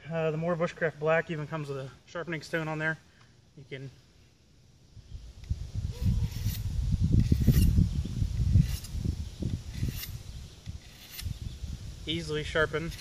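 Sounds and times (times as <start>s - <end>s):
knife scraping on sharpening stone: 6.2s - 6.6s, 7.2s - 7.8s, 8.5s - 9.0s, 9.7s - 10.2s, 10.8s - 11.4s.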